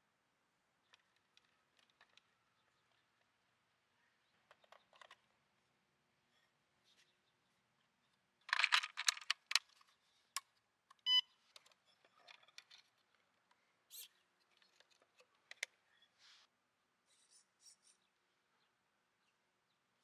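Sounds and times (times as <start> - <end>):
plastic clicks and rattles: 0.9 - 2.3, 4.4 - 5.3, 8.4 - 13.6, 14.4 - 15.8.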